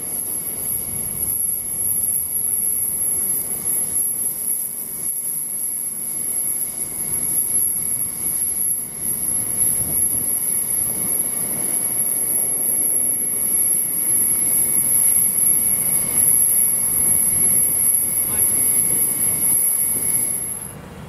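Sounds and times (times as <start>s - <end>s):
high-pitched whine: 0.0s - 21.0s
locomotive burners roaring: 13.2s - 21.0s.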